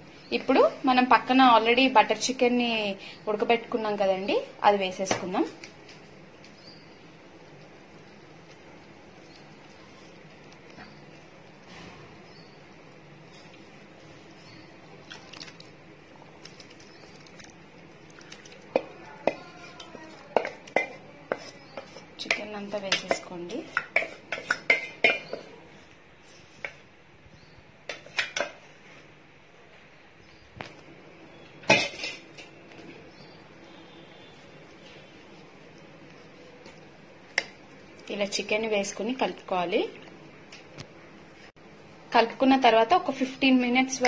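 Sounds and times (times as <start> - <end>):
spoon knocking on cookware: 20.3 - 25.4.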